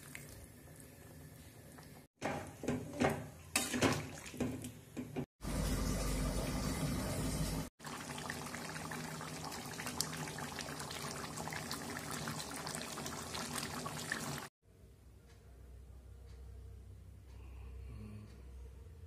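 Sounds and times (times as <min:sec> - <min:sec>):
curry gravy bubbling in pan: 0:07.8 - 0:14.5.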